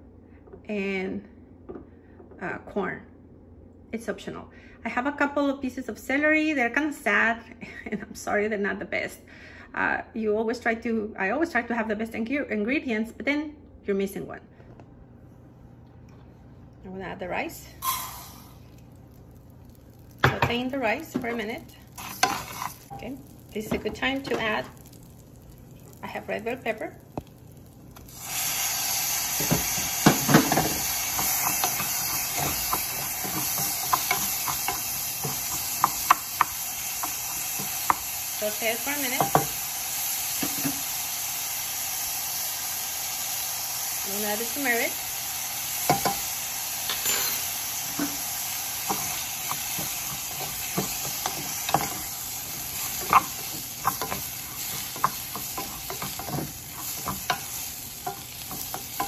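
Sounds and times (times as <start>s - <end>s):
food sizzling in hot oil: 17.6s - 59.0s
wooden spoon scraping and knocking pan: 20.2s - 24.9s, 29.4s - 38.0s, 47.9s - 59.0s.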